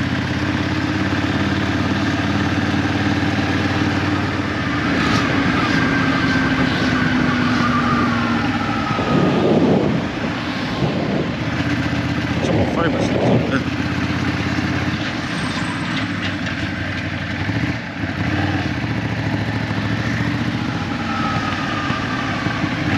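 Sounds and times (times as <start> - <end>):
motorcycle engine running: 0.0 - 15.5, 16.1 - 22.9
wind rushing: 4.6 - 11.7.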